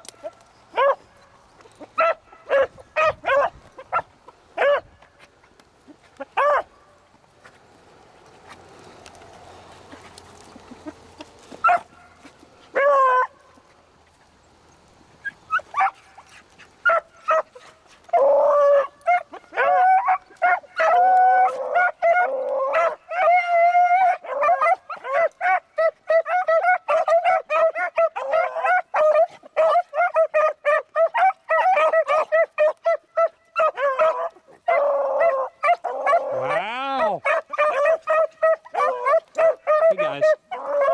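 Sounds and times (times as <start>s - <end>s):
hounds baying: 0.0s - 5.0s, 5.8s - 6.7s, 9.8s - 13.8s, 15.2s - 40.9s.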